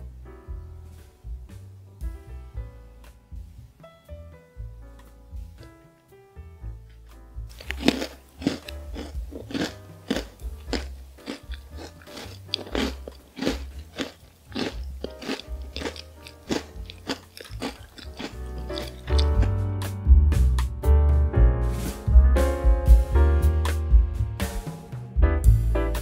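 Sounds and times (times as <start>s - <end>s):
crunching and chewing cookie: 7.5s - 19.5s.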